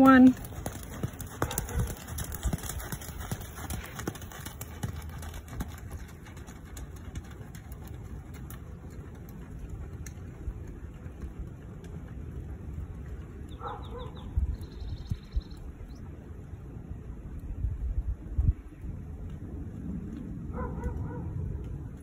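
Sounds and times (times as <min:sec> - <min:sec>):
hoofbeats on sand: 0:00.2 - 0:14.2.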